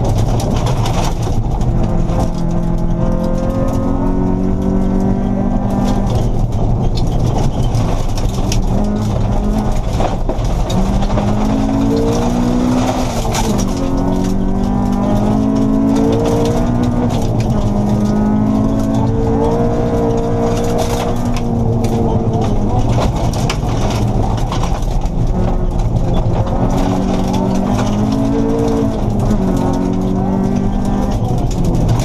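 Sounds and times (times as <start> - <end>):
rally car engine revving: 0.0 - 32.0
small stones clicking against car: 0.0 - 32.0
tyres roaring on gravel: 0.0 - 32.0.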